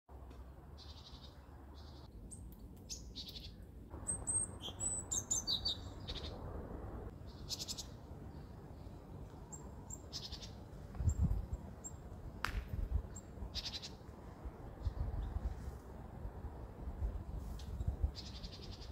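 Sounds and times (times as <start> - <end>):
steady low background noise: 0.1 - 18.9
small birds chirping: 0.7 - 6.5, 7.1 - 12.1, 13.0 - 14.0, 17.3 - 18.9.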